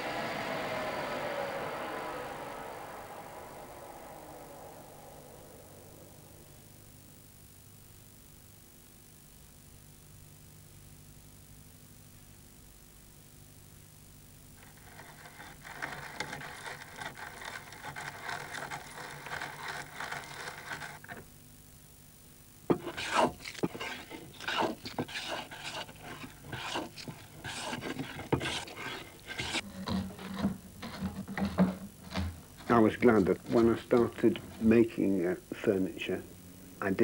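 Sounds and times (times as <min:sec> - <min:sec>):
hand plane cutting wood: 0:14.6 - 0:21.2, 0:22.7 - 0:34.7.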